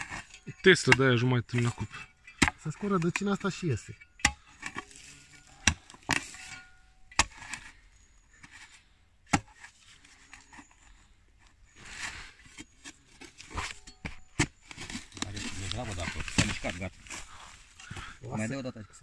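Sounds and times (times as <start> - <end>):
shovel chopping into stony soil: 0.0 - 3.4, 4.2 - 7.7, 9.3 - 10.6, 11.8 - 17.4
earth scraping and crunching: 0.0 - 19.0.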